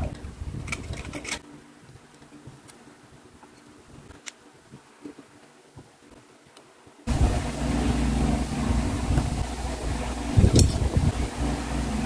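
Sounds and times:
low steady hum: 7.1s - 12.0s.

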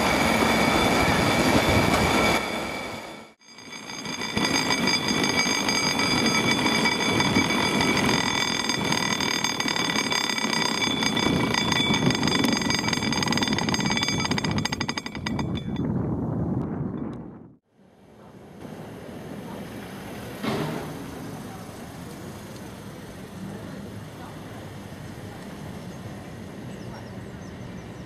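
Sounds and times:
haulage cables whirring over pulley: 0.0s - 15.9s
high ringing tones: 0.0s - 16.2s
fast rattle of clicks: 3.6s - 15.9s.

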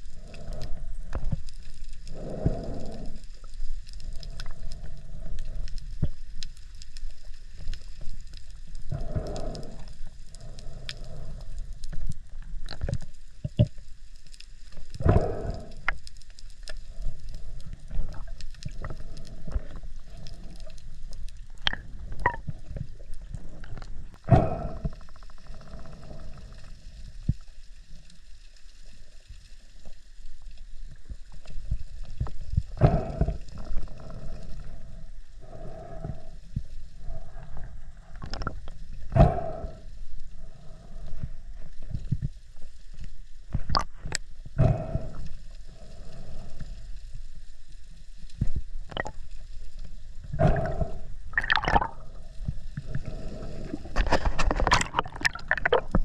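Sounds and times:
muffled underwater rumble: 0.0s - 56.0s
underwater clicks and crackles: 0.0s - 56.0s
water whoosh: 50.4s - 52.3s.

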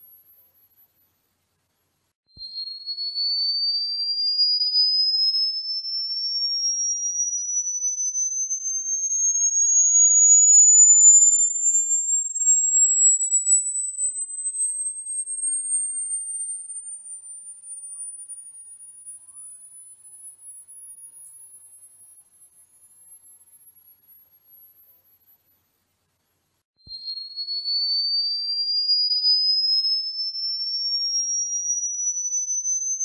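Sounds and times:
rising sine tone: 5.0s - 16.8s.

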